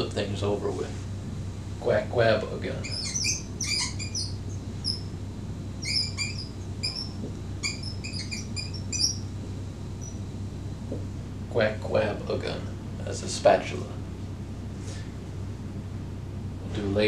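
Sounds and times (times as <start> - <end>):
marker squeaking on whiteboard: 2.8 - 5.0, 5.8 - 9.2, 10.0 - 10.2.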